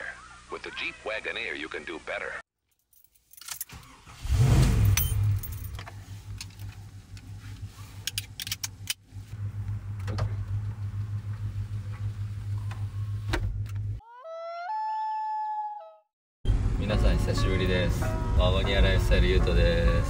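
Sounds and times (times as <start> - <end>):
keys jangling: 2.7 - 3.8, 4.8 - 6.8
car engine starting and running: 3.4 - 14.0
seatbelt buckle clicking: 8.0 - 9.0.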